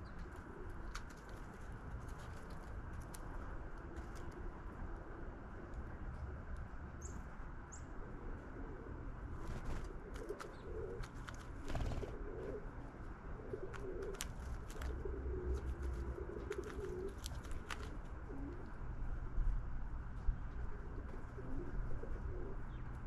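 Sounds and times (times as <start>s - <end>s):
steady low rumble: 0.0s - 23.0s
doves cooing: 8.0s - 18.8s, 20.7s - 22.8s.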